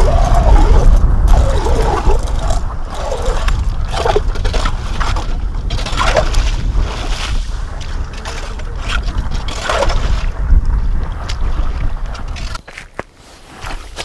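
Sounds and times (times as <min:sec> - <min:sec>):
ice auger scraping: 0:00.0 - 0:10.4
slush sloshing: 0:00.0 - 0:10.5
wind rumble on microphone: 0:00.0 - 0:14.0.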